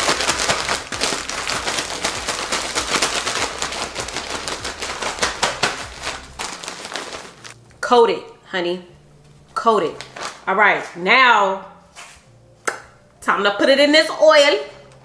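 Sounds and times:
plastic bag crinkling: 0:00.0 - 0:07.6, 0:10.0 - 0:10.5.

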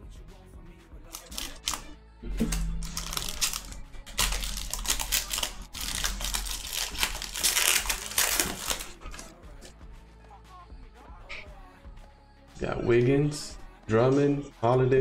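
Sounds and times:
foil wrapper crinkling and tearing: 0:01.1 - 0:09.3.

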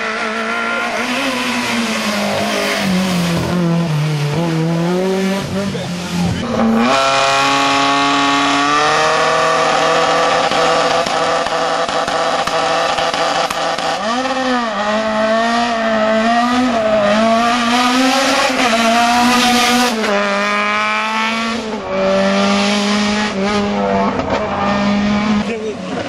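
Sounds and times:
rally car engine accelerating: 0:00.0 - 0:26.0.

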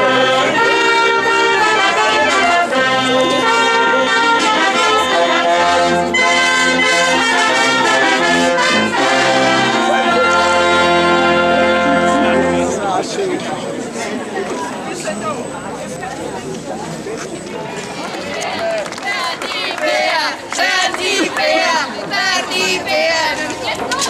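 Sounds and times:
trumpets and trombones playing chords: 0:00.0 - 0:13.0.

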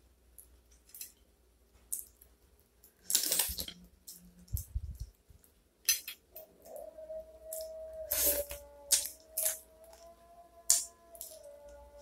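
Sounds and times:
crab shell cracking: 0:10.7 - 0:11.5.

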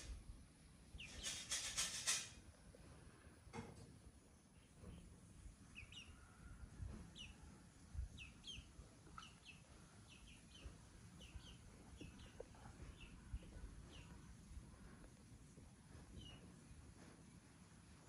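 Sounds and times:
faint bird chirping: 0:00.8 - 0:02.1, 0:04.2 - 0:15.2, 0:15.9 - 0:17.0.

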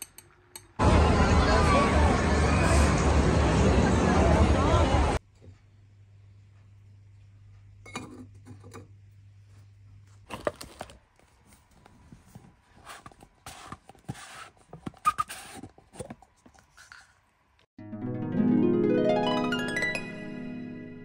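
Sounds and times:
cardboard box handling rustles: 0:10.3 - 0:16.8.

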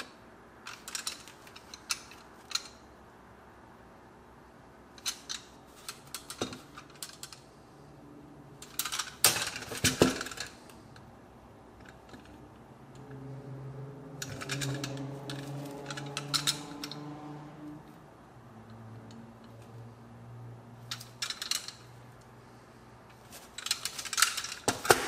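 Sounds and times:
low steady hum: 0:00.0 - 0:25.0
clatter and rustle: 0:08.6 - 0:10.9, 0:14.1 - 0:17.1, 0:20.8 - 0:25.0.

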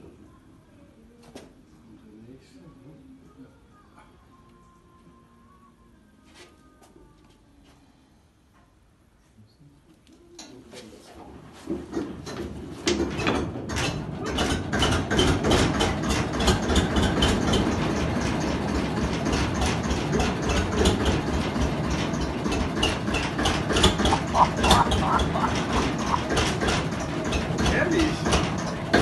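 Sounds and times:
locomotive engine hand-cranked and running: 0:11.8 - 0:29.0.

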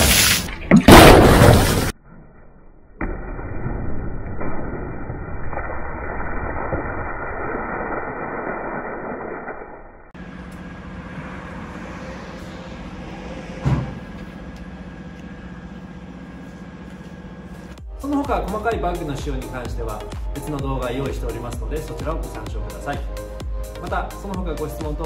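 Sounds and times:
sharp thump: 0:13.6 - 0:14.0.

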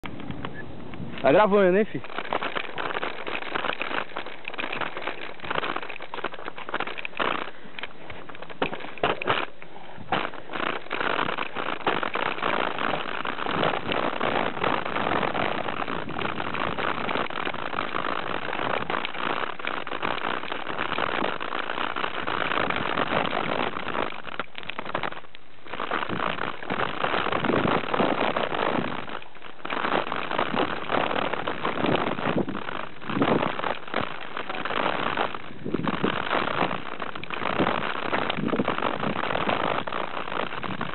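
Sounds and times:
bike rattling over roots and rocks: 0:00.0 - 0:40.9
bike tyres rolling over dirt: 0:00.0 - 0:40.9.

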